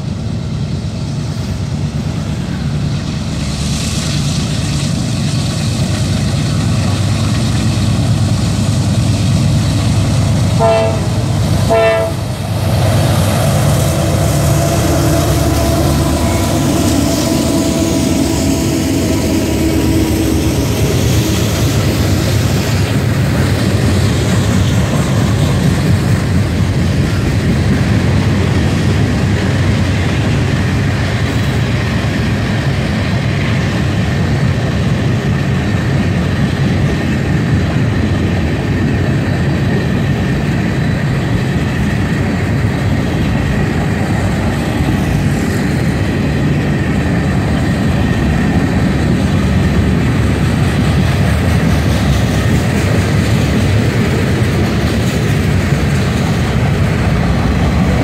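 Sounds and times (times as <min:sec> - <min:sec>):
diesel locomotives rumbling: 0:00.0 - 0:58.0
train horn blasts: 0:10.6 - 0:12.3, 0:14.4 - 0:20.5.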